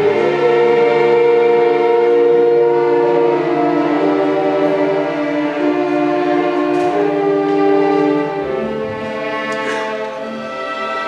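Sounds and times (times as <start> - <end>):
orchestra with sustained strings: 0.0 - 11.0.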